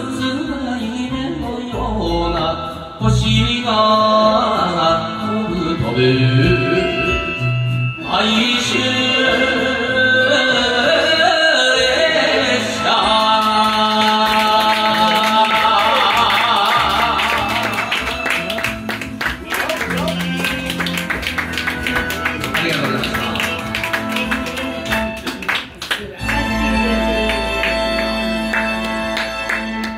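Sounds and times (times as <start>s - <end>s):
man singing into a microphone: 0.0s - 18.3s
karaoke backing track: 0.0s - 29.9s.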